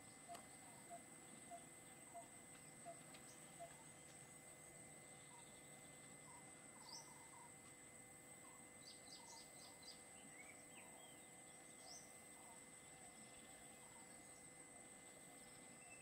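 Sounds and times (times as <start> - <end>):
high insect whine: 0.0 - 16.0
bird chirps: 5.1 - 7.6, 8.4 - 14.5.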